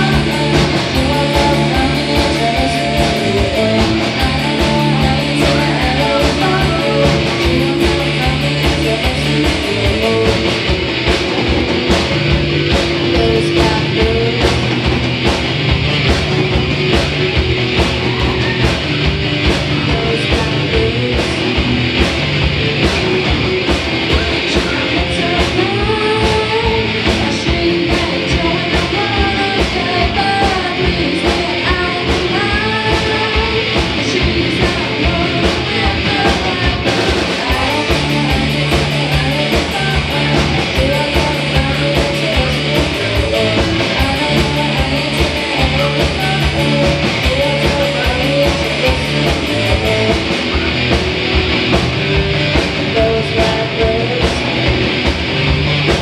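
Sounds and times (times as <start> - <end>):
girl singing: 0.0 - 10.8, 12.7 - 14.9, 19.7 - 21.8, 24.1 - 50.7, 52.8 - 54.8
bass guitar: 0.0 - 56.0
drum kit beat: 0.0 - 56.0
electric guitar: 0.0 - 56.0.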